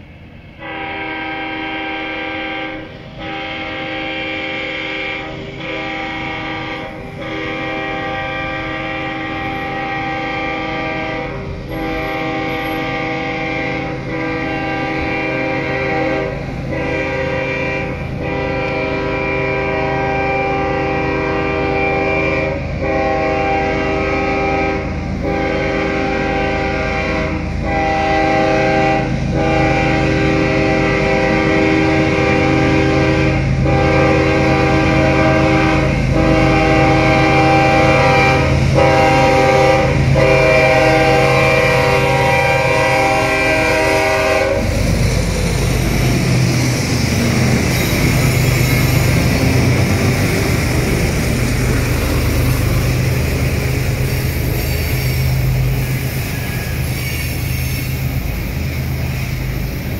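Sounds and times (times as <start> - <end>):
locomotive air horn blasts: 0.6 - 59.4
diesel engine rumble: 41.8 - 56.9.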